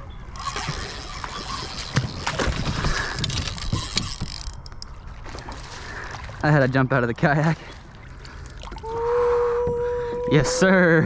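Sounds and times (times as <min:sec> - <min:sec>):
water splashing: 0:00.3 - 0:09.0.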